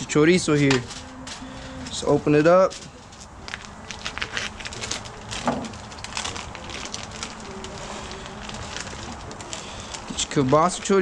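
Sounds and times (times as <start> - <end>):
plastic packaging crinkling: 2.7 - 11.0.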